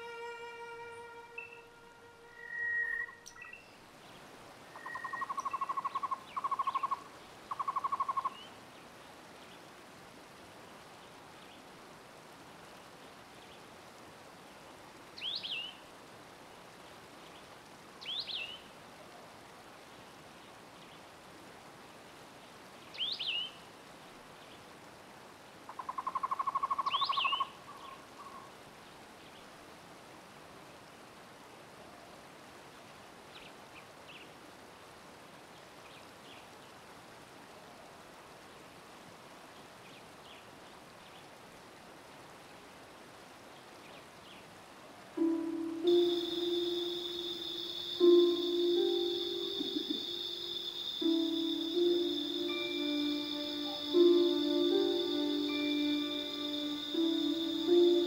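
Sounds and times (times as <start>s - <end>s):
faint background hiss: 0.0s - 58.0s
bird chirps: 45.8s - 58.0s.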